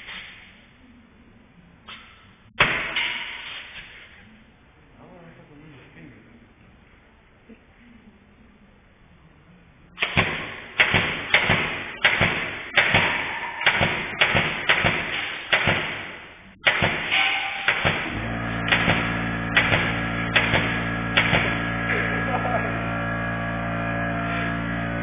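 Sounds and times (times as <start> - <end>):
nail gun firing: 10.0 - 22.0
air compressor humming: 10.0 - 25.0.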